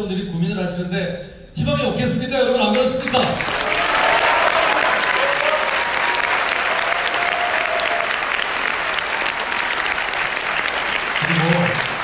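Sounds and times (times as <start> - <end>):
audience applauding: 3.0 - 12.0.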